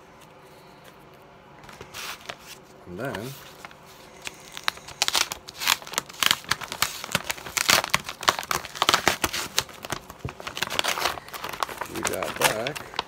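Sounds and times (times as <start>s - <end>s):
paper envelope tearing: 1.6s - 13.0s.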